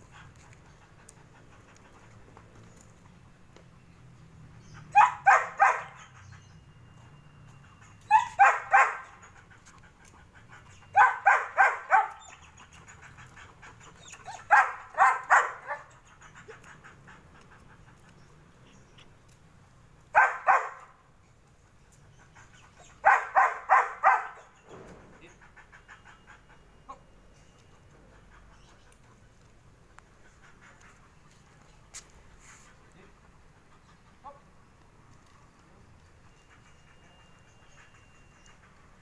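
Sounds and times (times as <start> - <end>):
dog barking rapidly: 4.9 - 6.0, 8.1 - 9.2, 11.0 - 12.2, 14.3 - 15.8, 20.2 - 20.9, 23.0 - 24.4.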